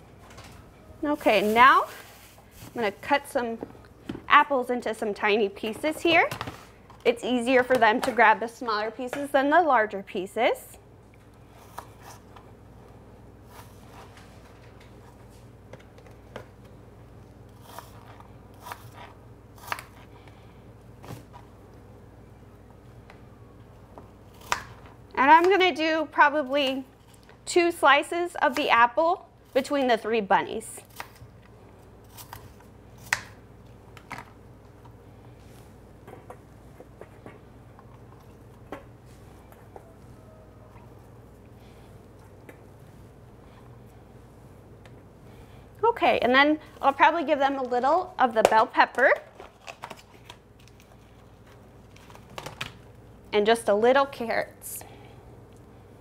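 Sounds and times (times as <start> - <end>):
low room hum: 0.0 - 56.0
knife cutting apple: 17.5 - 20.0.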